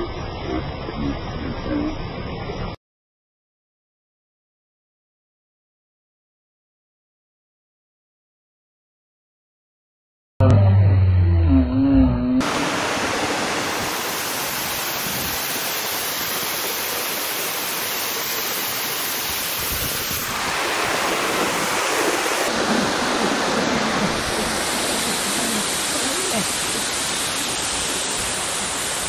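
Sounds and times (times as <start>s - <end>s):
rain: 12.4s - 29.0s
waterfall rushing: 12.4s - 29.0s.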